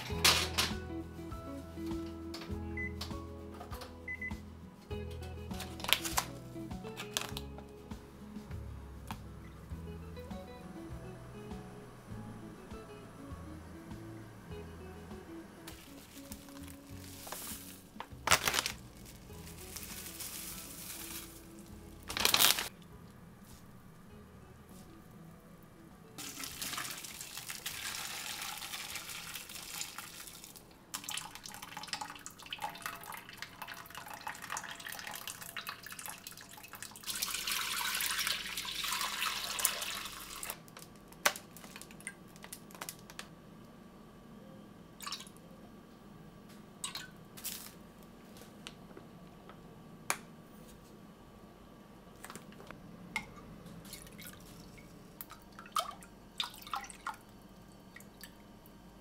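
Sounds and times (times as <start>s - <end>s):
liquid pouring and splashing: 26.2s - 40.6s, 45.0s - 45.3s, 53.8s - 57.2s.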